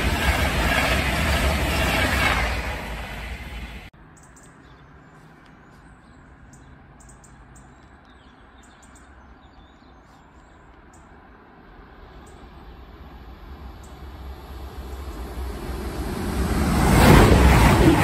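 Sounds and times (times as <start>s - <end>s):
train passing: 0.0s - 4.0s, 11.1s - 18.0s
small birds chirping: 3.7s - 11.2s.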